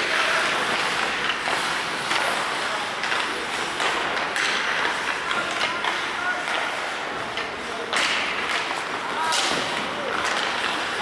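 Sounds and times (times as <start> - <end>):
hockey sticks and puck knocking: 0.0 - 11.0
skate blades scraping ice: 0.0 - 11.0.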